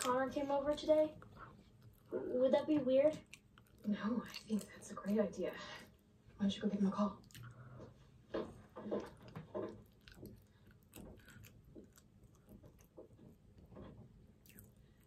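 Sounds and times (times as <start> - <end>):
person chewing a sandwich: 1.2 - 2.2, 3.2 - 5.2, 7.2 - 15.0.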